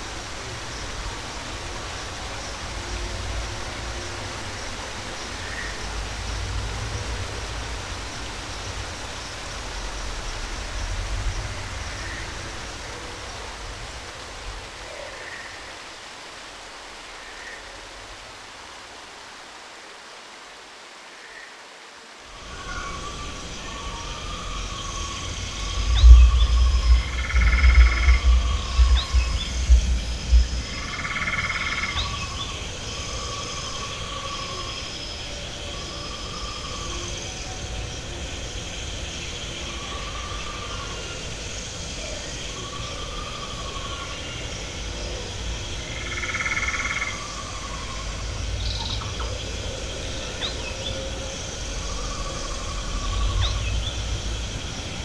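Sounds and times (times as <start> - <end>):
frog-like creature calls: 22.5 - 32.4
low rumble: 23.2 - 31.1.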